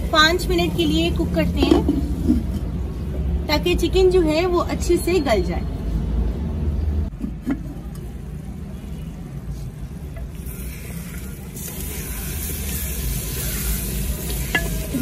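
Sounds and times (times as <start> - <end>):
chicken sizzling in a pot: 10.2 - 15.0.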